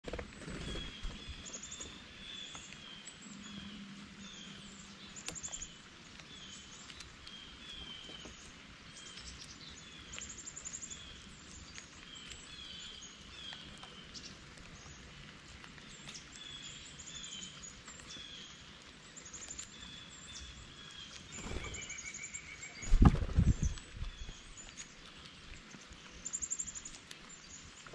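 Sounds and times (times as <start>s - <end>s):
songbirds calling: 0.0s - 27.9s
light rain hiss: 0.9s - 27.9s
bird wing flaps and thumps: 21.3s - 21.9s, 22.8s - 23.8s.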